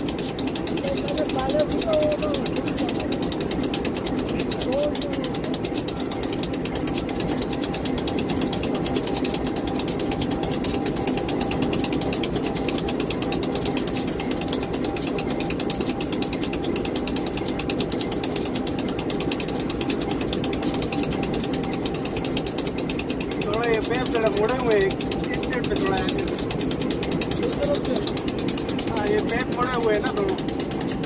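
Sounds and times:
diesel locomotive engine idling: 0.0 - 31.0.

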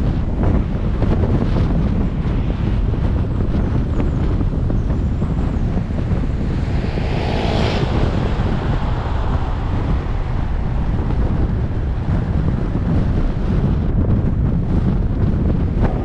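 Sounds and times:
low road rumble: 0.0 - 16.0
wind buffeting microphone: 0.0 - 16.0.

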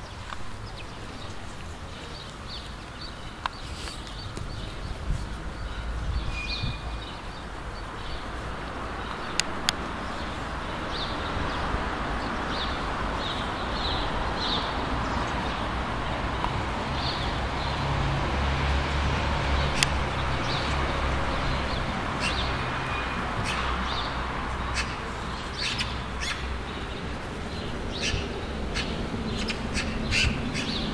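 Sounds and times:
small birds chirping: 0.0 - 30.9
sharp clicks: 19.8 - 20.0.

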